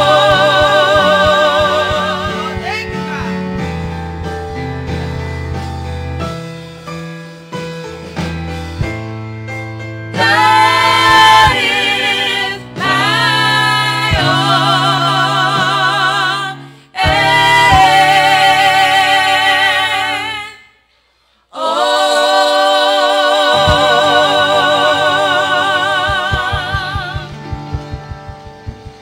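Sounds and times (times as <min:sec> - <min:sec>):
women singing gospel: 0:00.0 - 0:02.6, 0:10.2 - 0:20.8, 0:21.4 - 0:27.6
electric keyboard: 0:00.0 - 0:20.1, 0:21.6 - 0:29.0.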